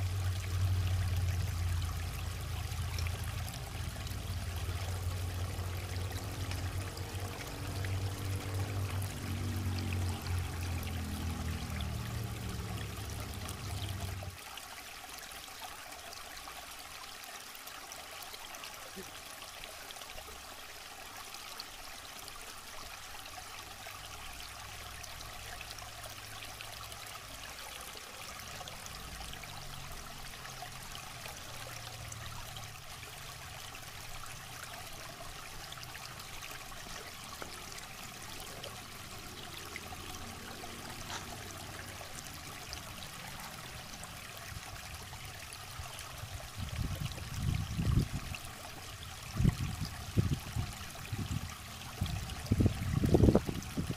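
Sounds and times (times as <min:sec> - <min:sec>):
river water flowing over rocks: 0:00.0 - 0:53.9.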